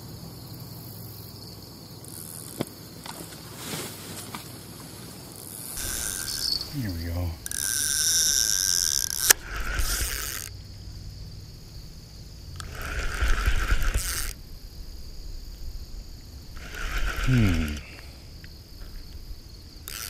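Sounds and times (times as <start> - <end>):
crickets chirping: 0.0 - 20.0
fishing reel whirring: 5.3 - 10.6, 12.6 - 14.4, 16.5 - 18.0, 19.8 - 20.0.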